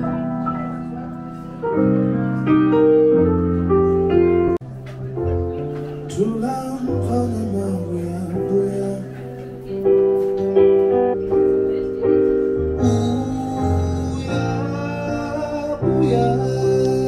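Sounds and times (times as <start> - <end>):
soft keyboard chords: 0.0 - 17.0
man singing a lullaby: 6.1 - 9.2, 12.8 - 17.0.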